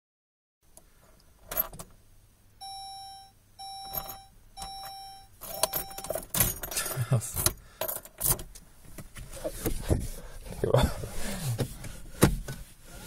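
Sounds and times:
dashboard warning chime: 2.6 - 6.3.

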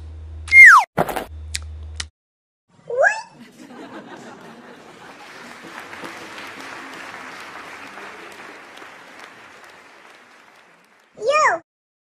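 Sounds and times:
audience applauding: 3.6 - 11.3
faint crowd voices: 4.2 - 11.3.

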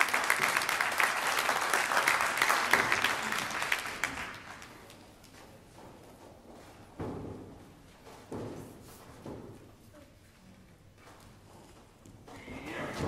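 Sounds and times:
crowd applauding: 0.0 - 5.0.

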